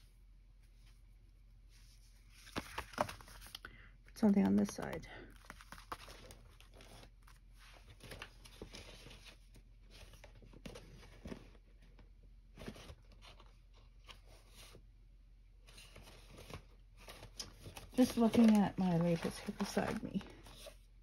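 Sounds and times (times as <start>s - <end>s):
paper rustling: 1.8s - 3.6s, 4.2s - 11.7s, 15.6s - 20.8s
paper crinkles and taps: 2.4s - 3.6s, 4.2s - 12.0s, 15.7s - 20.7s.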